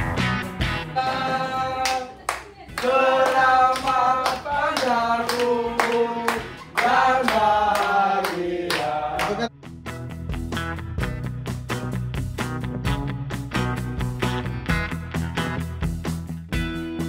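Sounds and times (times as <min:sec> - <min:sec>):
group singing a birthday song: 0:00.8 - 0:09.5
people clapping along: 0:01.0 - 0:09.5.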